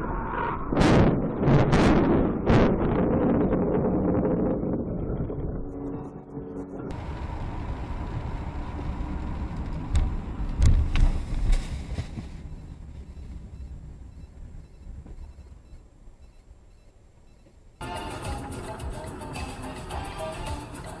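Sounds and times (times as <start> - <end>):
road noise: 4.5 - 21.0.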